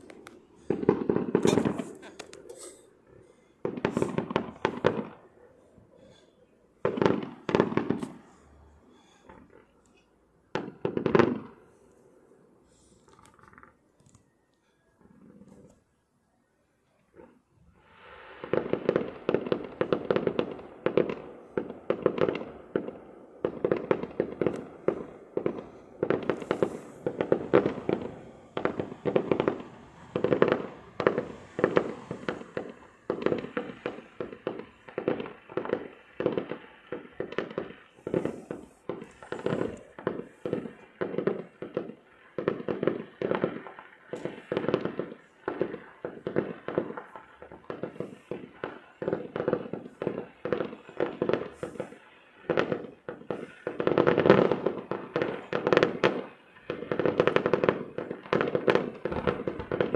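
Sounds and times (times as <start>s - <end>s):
fireworks crackling and popping: 0.0s - 11.8s, 12.6s - 14.3s, 17.1s - 59.9s.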